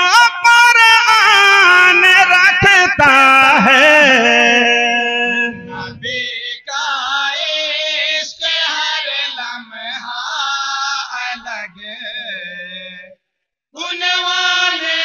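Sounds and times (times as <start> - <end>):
men chanting without instruments: 0.9 - 11.8.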